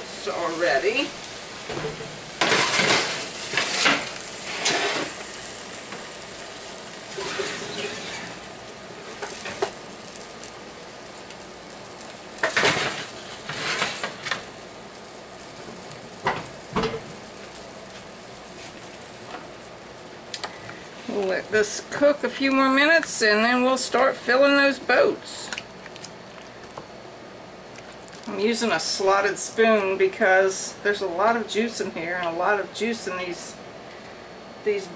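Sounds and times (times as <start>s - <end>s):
sauce sizzling in skillet: 0.0s - 30.6s
pans and foil clattering: 1.7s - 5.2s, 12.4s - 14.5s.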